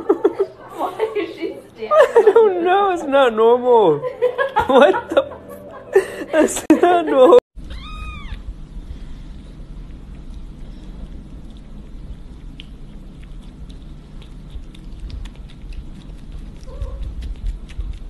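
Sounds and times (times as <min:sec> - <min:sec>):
kitten squeak: 0:07.6 - 0:08.4
low rumble: 0:07.6 - 0:13.8
kitten suckling wet clicks: 0:09.6 - 0:18.0.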